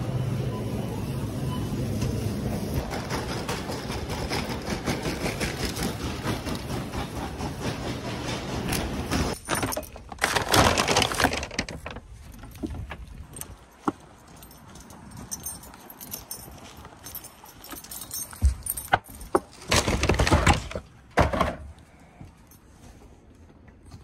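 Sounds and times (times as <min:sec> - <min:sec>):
shopping cart rattling: 0:08.4 - 0:12.2.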